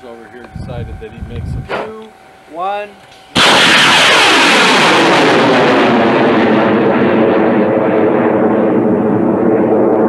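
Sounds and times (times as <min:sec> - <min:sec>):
rocket engine roaring: 0:03.1 - 0:10.0.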